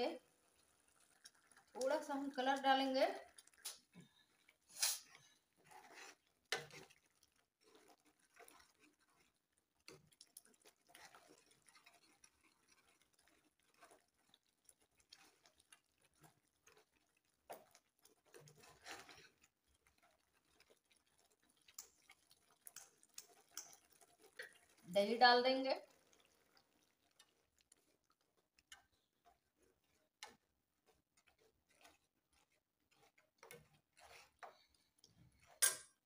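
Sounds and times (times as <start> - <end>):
spoon scraping and tapping pot: 4.9 - 14.0, 17.5 - 24.7, 31.2 - 36.0.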